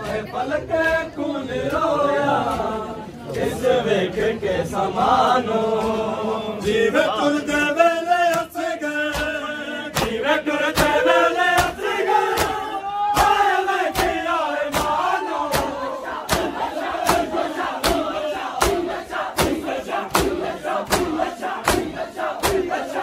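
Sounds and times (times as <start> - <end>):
men chanting a lament: 0.0 - 23.0
hands striking chest: 13.2 - 22.8.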